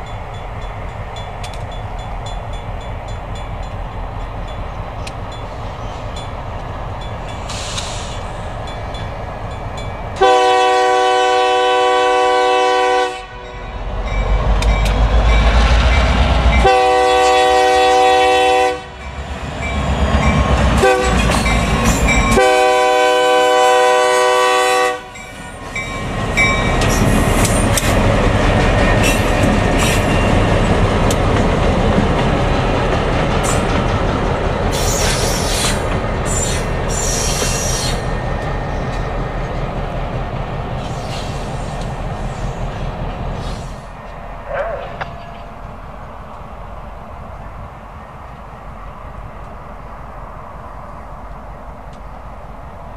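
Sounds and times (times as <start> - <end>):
train wheels clicking over rail joints: 0.0 - 10.3, 13.9 - 16.7, 19.1 - 22.5, 25.1 - 46.5
locomotive air horn blasts: 10.2 - 13.7, 16.6 - 19.0, 20.8 - 21.3, 22.3 - 25.2.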